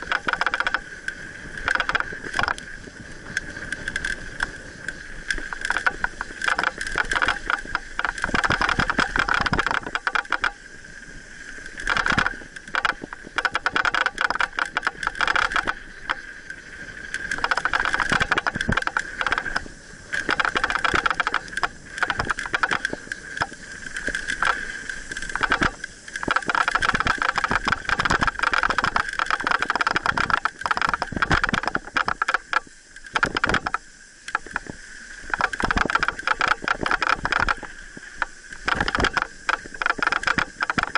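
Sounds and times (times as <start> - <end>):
bike chain and frame rattling: 0.0 - 2.6, 3.2 - 10.6, 11.7 - 16.2, 17.1 - 34.6.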